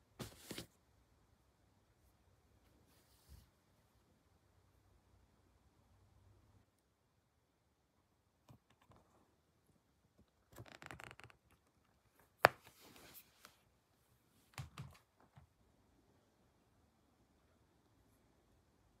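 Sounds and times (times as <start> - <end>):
rustling and crinkling: 0.2 - 0.8.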